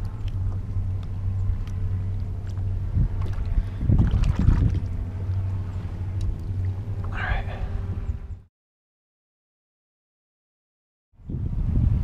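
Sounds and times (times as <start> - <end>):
water against kayak hull: 0.0 - 6.8
wind on microphone: 0.0 - 8.4, 11.2 - 12.0
splashing and knocking: 3.1 - 4.9.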